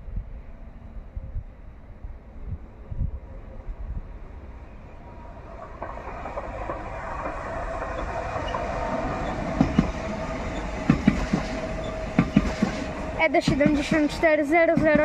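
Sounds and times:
train rushing with whine: 0.0 - 15.0
wheels clacking over rail joints: 5.0 - 15.0.

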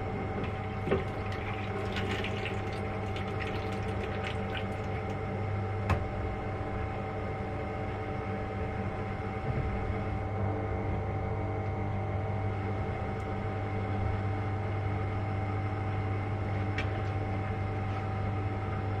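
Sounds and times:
small pump humming: 0.0 - 19.0
liquid gurgling in lines: 0.3 - 5.4.

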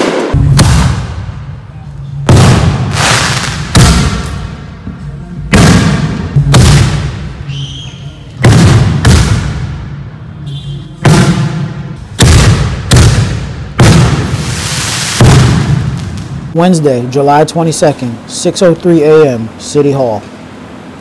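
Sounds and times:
fireworks bangs with echo: 0.0 - 4.8, 5.5 - 7.4, 8.4 - 10.1, 11.0 - 16.6.

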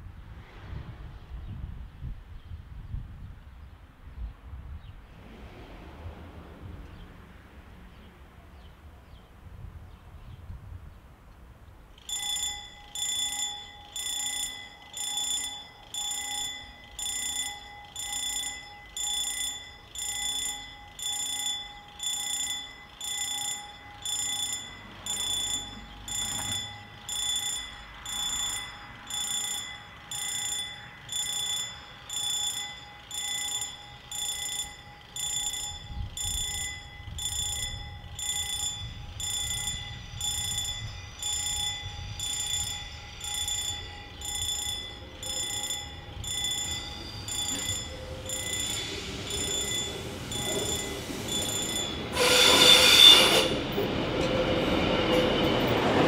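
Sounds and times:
low rumble: 5.0 - 8.5
level crossing bell ringing: 12.0 - 53.2.

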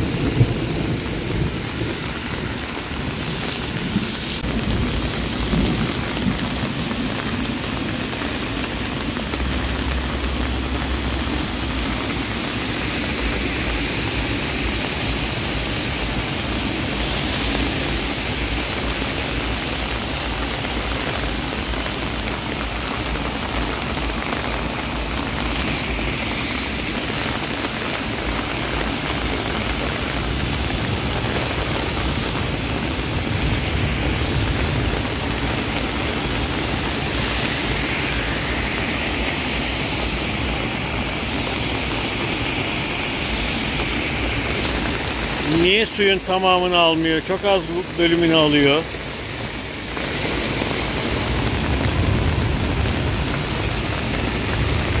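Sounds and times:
water pouring through drain grate: 0.0 - 41.7.

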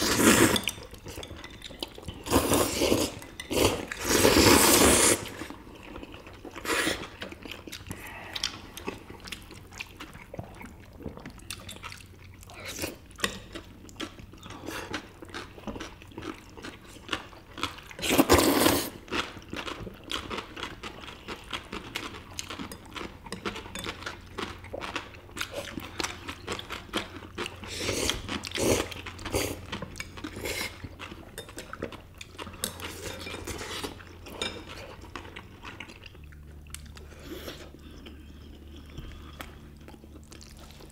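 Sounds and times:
slurping noodles: 0.0 - 0.7, 2.2 - 5.6, 18.0 - 19.0
people chewing: 0.0 - 40.9.

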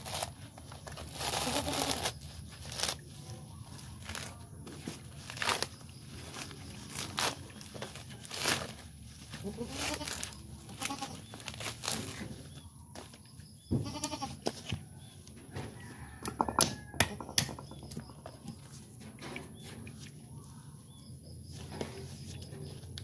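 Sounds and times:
dry coconut fibres ripping: 0.0 - 13.2
goat bleating: 1.4 - 2.0, 9.4 - 11.2, 13.8 - 14.4
sharp knocks: 16.2 - 18.0.

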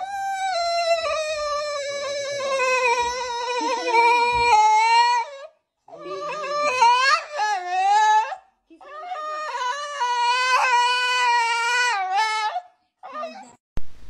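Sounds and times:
dog howling: 0.0 - 13.6.

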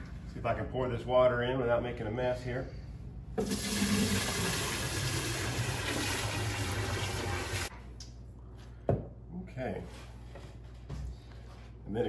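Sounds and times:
water splashing from bucket: 3.4 - 7.7.

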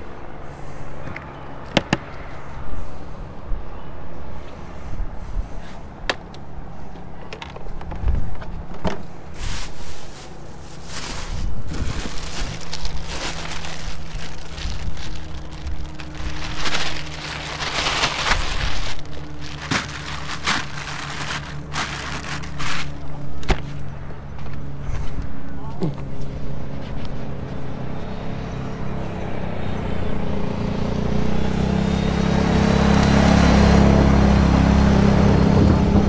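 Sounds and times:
wind rumbling on microphone: 2.2 - 6.0, 7.6 - 25.6, 34.8 - 36.0
plastic bags rustling: 9.3 - 23.4.

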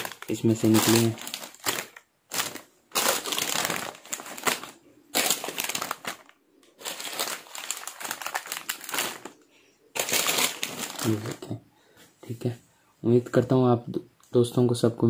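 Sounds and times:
plastic packets crinkling: 0.0 - 11.6.

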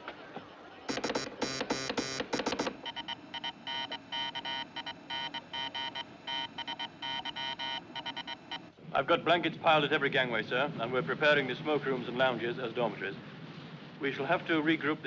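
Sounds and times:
morse code buzzy tone: 0.9 - 8.7.

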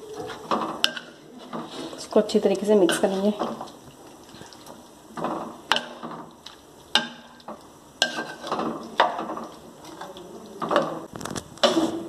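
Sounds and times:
spoon scraping a pan: 0.0 - 12.0
spoon knocking a metal pan: 5.2 - 6.3, 6.9 - 9.6.

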